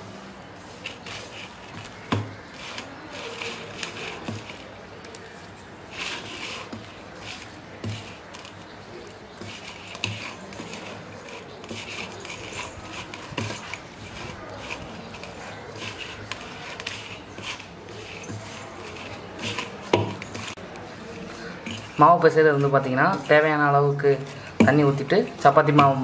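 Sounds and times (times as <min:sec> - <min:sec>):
hand kneading dough: 0:00.0 - 0:26.0.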